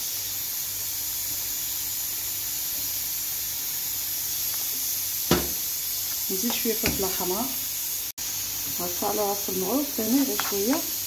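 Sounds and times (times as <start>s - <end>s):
sauce sizzling in a pan: 0.0s - 11.0s
sharp knock: 5.3s - 5.6s.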